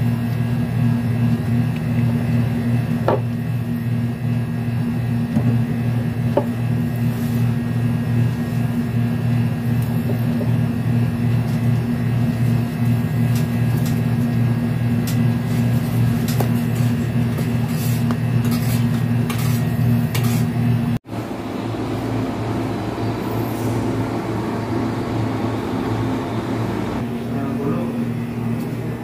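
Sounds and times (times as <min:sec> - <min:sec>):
motor humming: 0:21.1 - 0:27.2.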